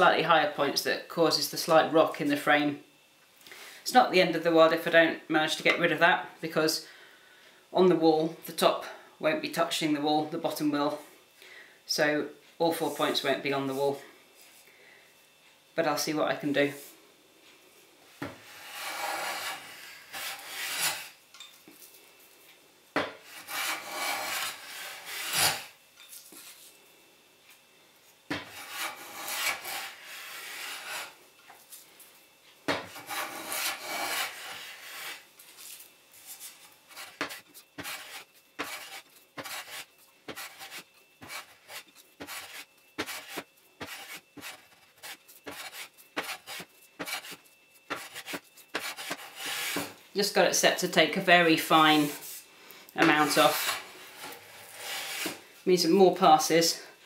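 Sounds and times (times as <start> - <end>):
plane shaving wood: 18.4 - 21.1, 23.3 - 25.7, 28.5 - 31.2, 32.9 - 35.2, 36.9 - 49.9.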